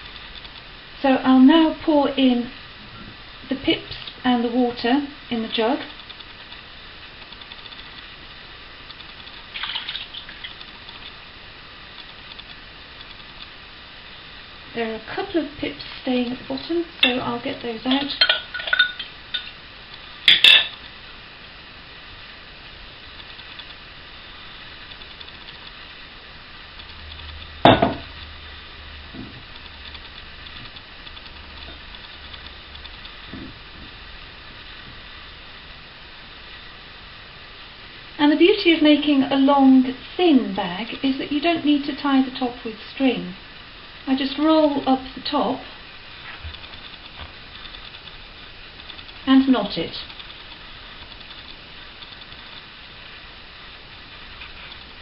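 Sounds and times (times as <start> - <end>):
kitchenware knock: 27.7 - 28.0.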